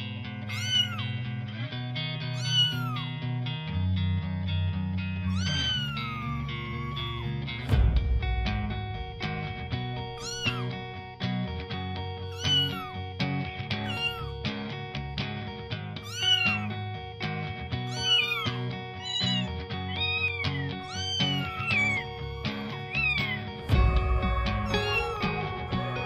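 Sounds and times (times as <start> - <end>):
background music: 0.0 - 26.0
kitten meowing: 0.5 - 1.2, 2.3 - 3.2, 5.2 - 7.4, 10.2 - 10.8, 12.3 - 13.1, 13.8 - 14.4, 16.0 - 16.8, 17.8 - 25.7.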